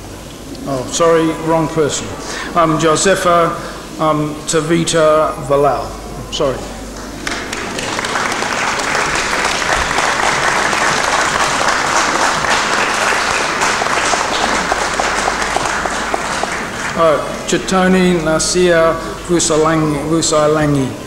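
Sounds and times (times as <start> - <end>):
audience applauding: 7.0 - 19.3.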